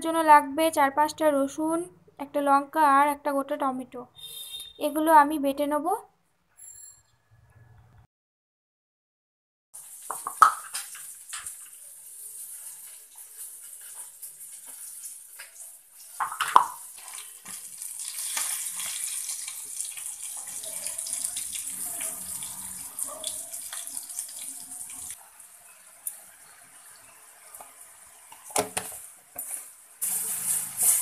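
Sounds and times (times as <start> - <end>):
food sizzling in a frying pan: 9.8 - 31.0.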